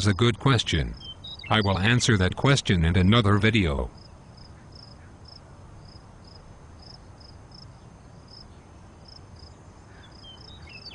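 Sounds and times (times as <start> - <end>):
low steady background noise: 0.0 - 10.9
crickets chirping: 3.9 - 10.9.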